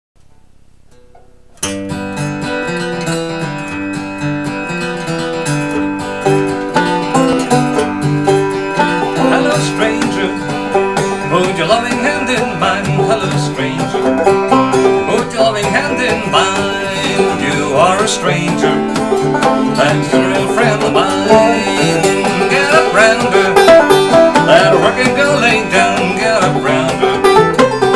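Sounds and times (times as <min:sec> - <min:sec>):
acoustic guitar strumming: 0:00.2 - 0:27.9
banjo playing: 0:01.1 - 0:27.9.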